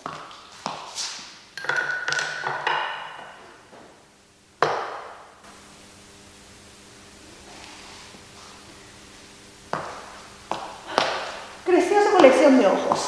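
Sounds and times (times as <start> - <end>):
high-heeled footsteps on hard floor: 0.0 - 1.3, 9.7 - 13.0.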